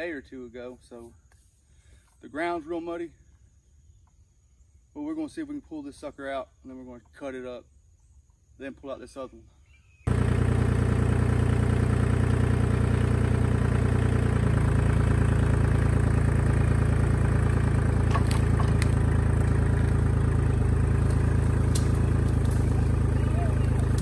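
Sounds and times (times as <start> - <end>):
tractor diesel engine running: 10.1 - 24.0.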